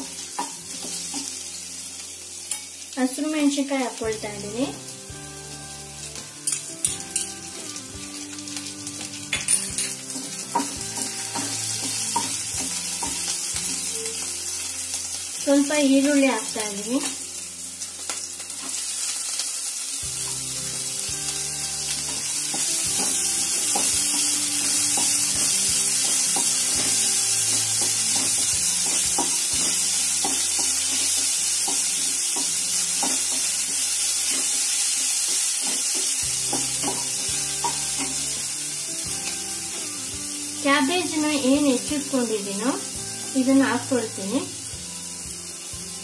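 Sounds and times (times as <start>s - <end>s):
onion sizzling in hot oil: 0.0s - 46.0s
soft background music: 0.0s - 46.0s.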